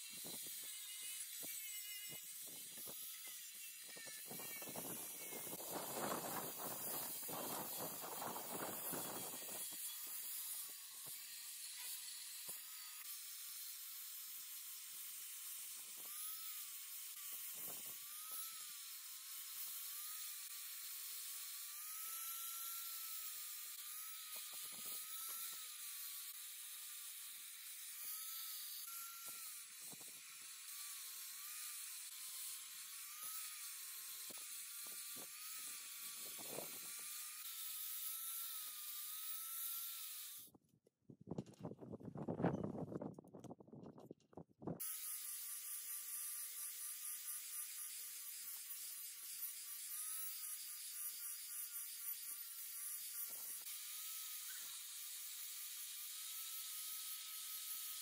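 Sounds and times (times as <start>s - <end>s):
angle grinder whining: 0.0s - 40.5s, 44.8s - 58.0s.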